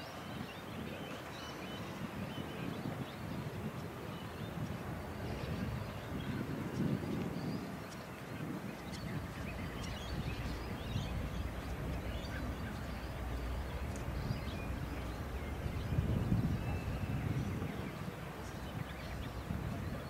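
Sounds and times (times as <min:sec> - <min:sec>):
wind rumble on microphone: 0:00.0 - 0:20.0
faint bird chirps: 0:08.8 - 0:20.0.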